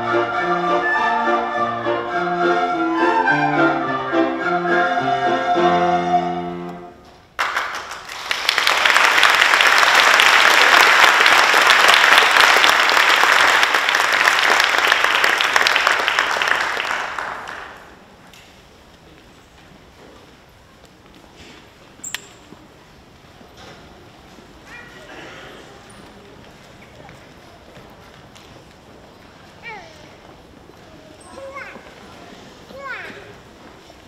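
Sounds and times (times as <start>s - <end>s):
song ending: 0.0s - 7.0s
audience applause: 7.4s - 18.1s.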